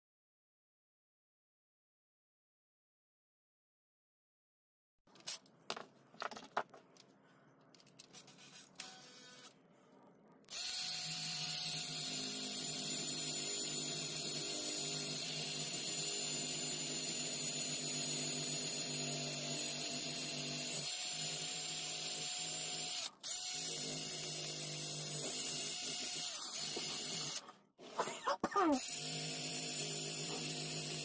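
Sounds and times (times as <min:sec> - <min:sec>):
rotary tool motor whine: 0:10.5 - 0:27.4, 0:28.8 - 0:31.0.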